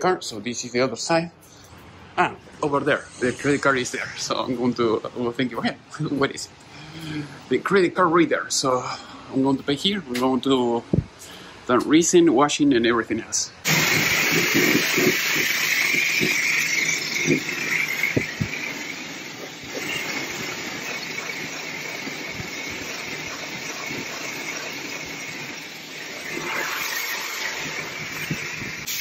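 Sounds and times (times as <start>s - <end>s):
high-pressure water jet hissing: 13.6s - 29.0s.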